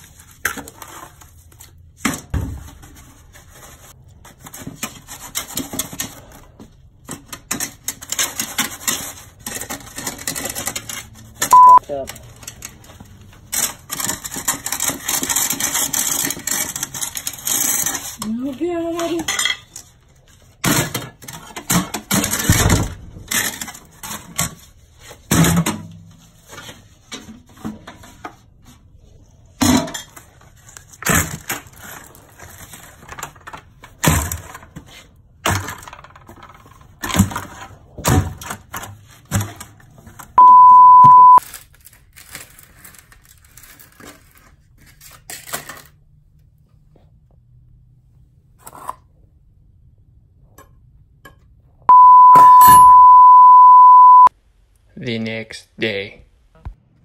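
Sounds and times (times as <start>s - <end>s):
censor bleep: 11.5s - 11.8s, 40.4s - 41.4s, 51.9s - 54.3s.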